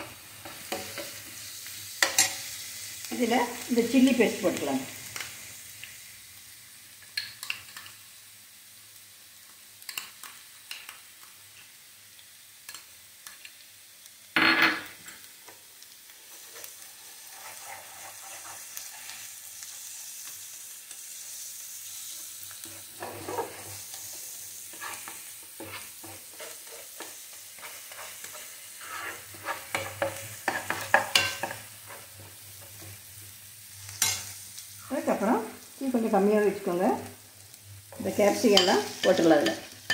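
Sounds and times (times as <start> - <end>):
spoon scraping frying pan: 0.0 - 2.6, 16.3 - 19.3, 22.6 - 33.0, 33.9 - 34.4, 37.9 - 39.9
paste sizzling in oil: 0.0 - 39.9.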